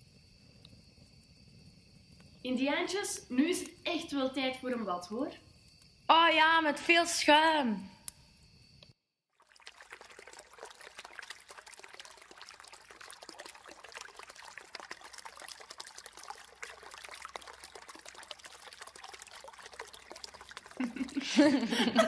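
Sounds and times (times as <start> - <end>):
water running into bath: 9.4 - 22.0.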